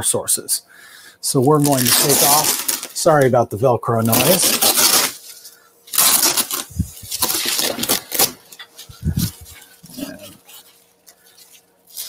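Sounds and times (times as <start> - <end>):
velcro ripping apart: 1.6 - 3.2, 4.0 - 5.3, 5.9 - 9.6, 10.2 - 12.0
fabric rustling: 8.8 - 12.0.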